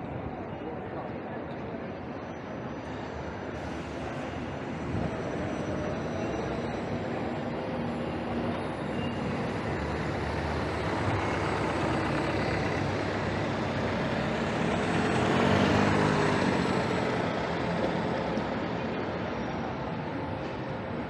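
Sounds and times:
road noise: 0.0 - 21.0
large vehicle engine passing: 9.4 - 19.3.

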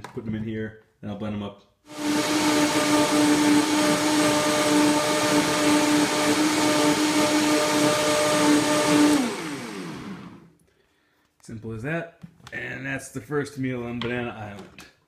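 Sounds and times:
blender motor whine: 1.9 - 10.5
rushing noise of blending: 1.9 - 10.5.

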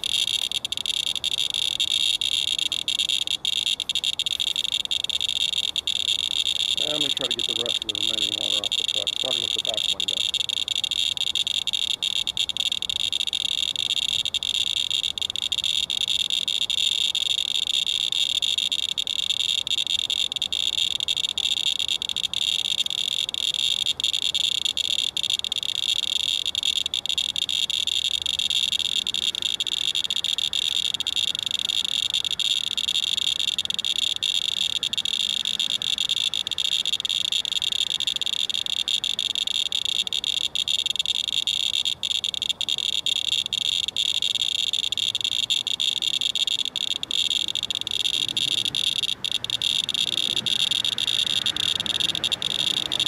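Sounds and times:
geiger counter clicking buzz: 0.0 - 53.0.

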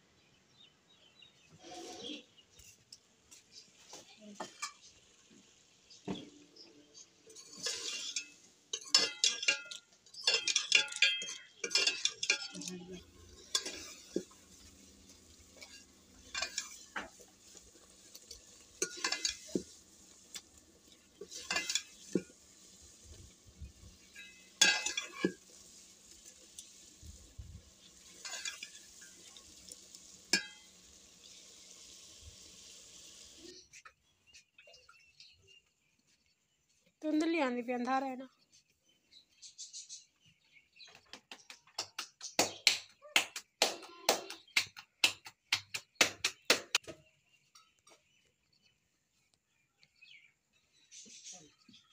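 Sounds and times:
metal ladle scraping a pot: 1.5 - 2.4, 7.2 - 26.9, 27.8 - 31.4
curry simmering: 3.2 - 35.1.

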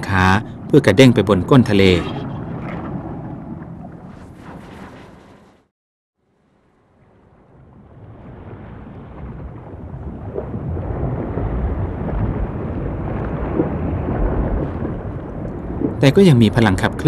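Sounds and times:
low rumbling noise: 6.4 - 17.0.

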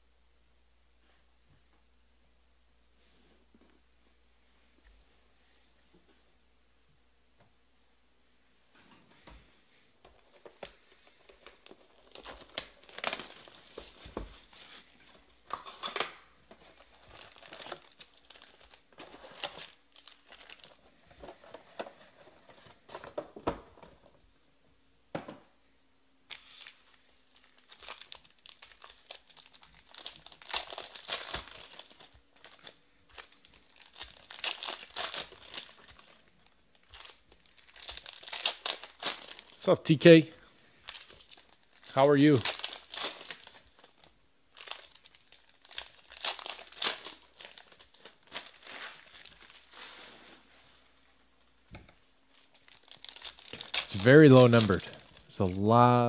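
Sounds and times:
foil wrappers crinkling: 10.1 - 23.2, 26.3 - 51.0, 52.3 - 55.8
packs torn open: 11.4 - 20.8, 26.3 - 39.6, 40.8 - 50.1, 52.3 - 55.3.

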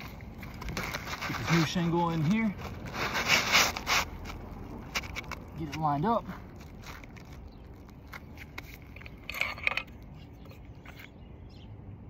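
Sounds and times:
short scrape: 2.6 - 4.4.

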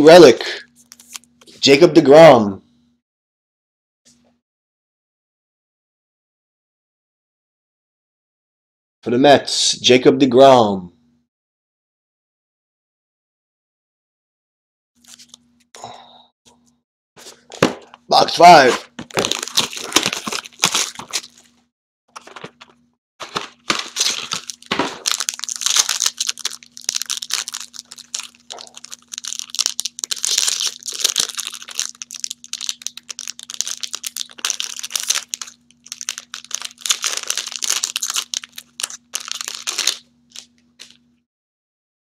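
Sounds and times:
foil wrapper crinkling: 0.8 - 1.3, 18.8 - 21.5, 22.1 - 41.0.

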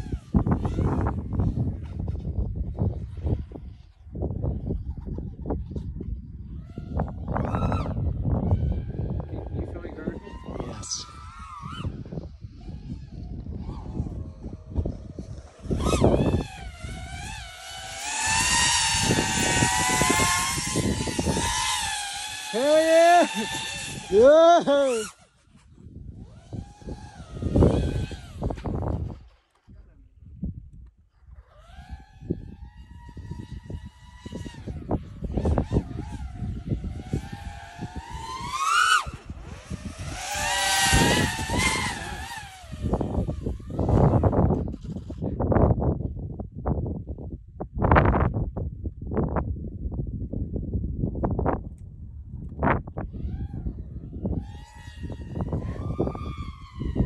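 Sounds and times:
quadcopter motors whining: 0.0 - 46.1, 52.4 - 57.0
propeller air rush: 8.6 - 29.6, 31.4 - 45.3, 53.1 - 57.0.

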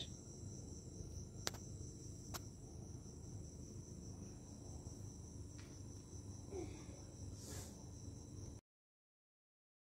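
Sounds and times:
crickets chirring: 0.0 - 8.6.

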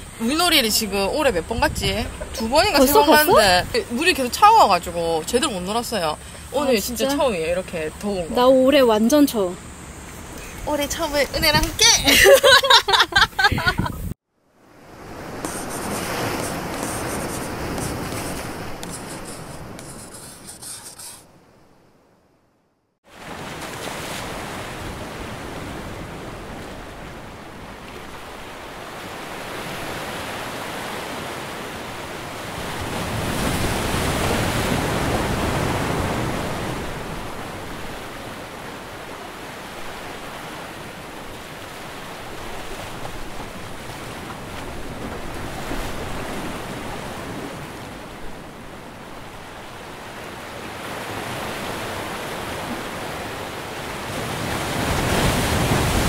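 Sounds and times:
sea waves washing onto shore: 14.6 - 21.2, 23.1 - 56.0.

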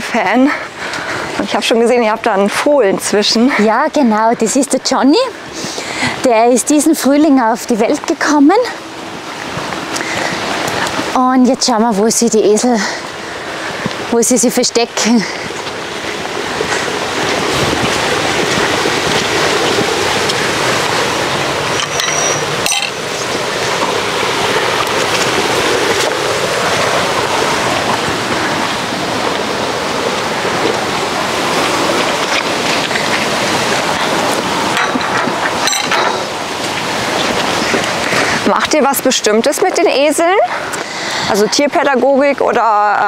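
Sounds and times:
rushing water: 0.0 - 43.0.

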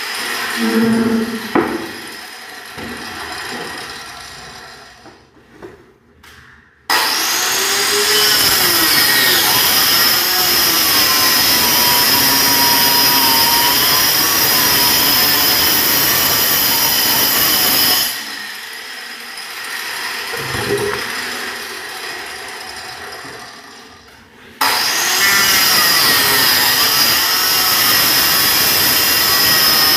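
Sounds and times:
electric saw cutting plywood: 0.0 - 5.1, 6.9 - 24.0, 24.6 - 29.9.

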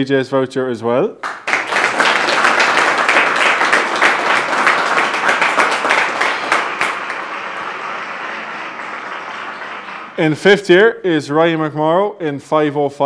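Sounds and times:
audience applauding: 1.2 - 10.7.

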